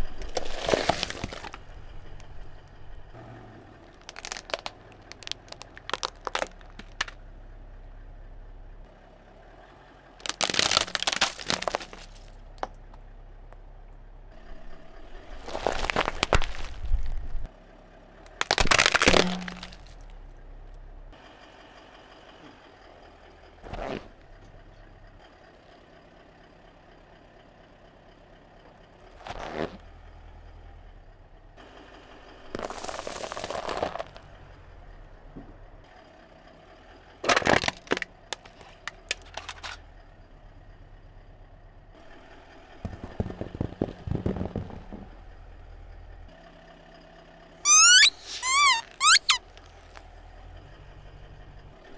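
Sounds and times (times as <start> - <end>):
car tyre crushing objects: 0.0 - 3.1, 3.8 - 7.2, 10.2 - 13.0, 15.2 - 17.5, 18.3 - 20.2, 29.1 - 29.9, 32.5 - 34.3, 37.2 - 39.8, 42.7 - 45.6.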